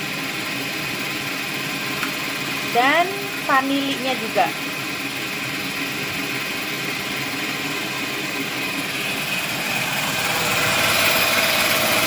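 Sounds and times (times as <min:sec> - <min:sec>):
stand mixer whisking: 0:04.8 - 0:12.0.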